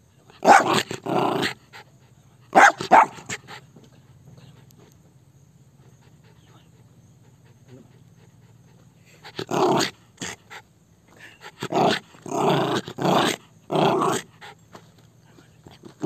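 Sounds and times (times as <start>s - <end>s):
dog barking: 0.4s - 0.8s, 2.5s - 3.4s.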